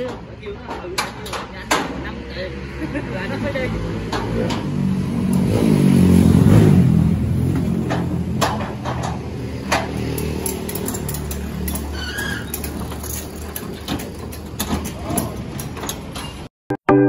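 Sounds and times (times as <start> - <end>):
sharp knocks: 7.5 - 10.1.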